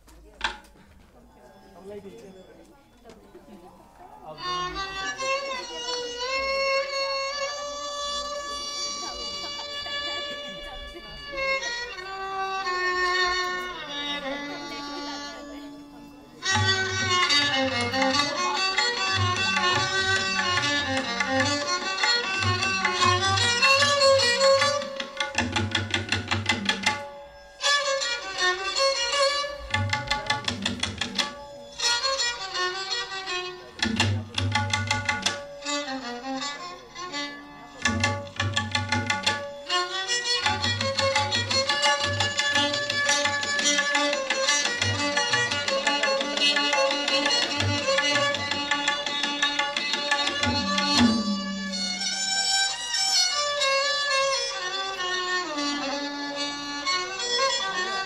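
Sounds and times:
tabla beats: 0.0s - 3.0s, 3.9s - 58.0s
violin melody: 4.2s - 58.0s
hand drum beats: 16.5s - 27.0s, 29.7s - 31.4s, 33.8s - 35.5s, 37.8s - 39.5s, 40.5s - 52.4s.

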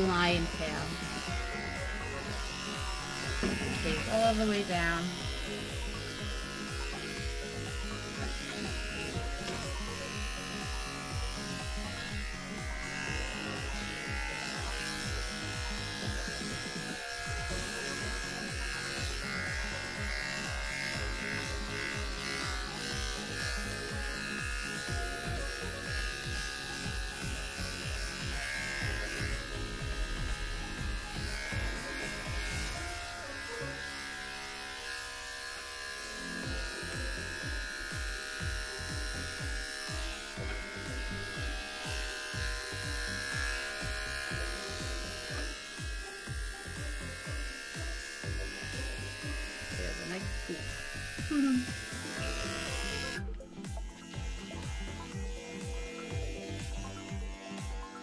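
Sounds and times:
electric pet clippers running: 0.0s - 58.0s.

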